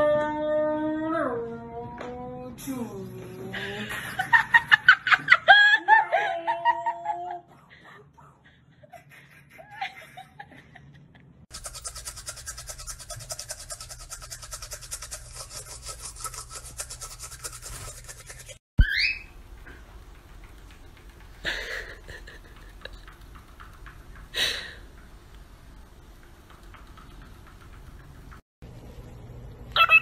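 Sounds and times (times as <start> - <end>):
toothbrush scrubbing teeth: 11.5 - 18.6
cockatiel whistle and calls: 18.8 - 19.3, 29.8 - 30.0.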